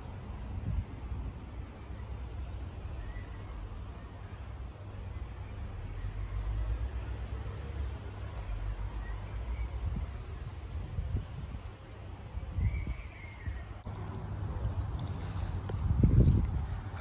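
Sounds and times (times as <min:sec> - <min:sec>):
wind buffeting microphone: 0:00.0 - 0:02.0, 0:08.7 - 0:17.0.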